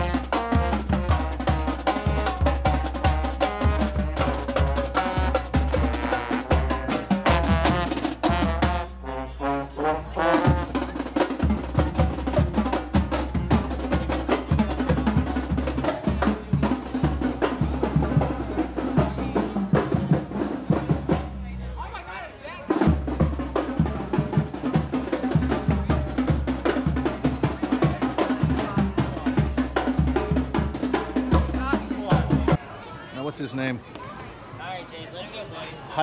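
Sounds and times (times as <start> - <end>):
saxophones and horns playing: 0.0 - 15.9
drums and percussion: 0.0 - 34.8.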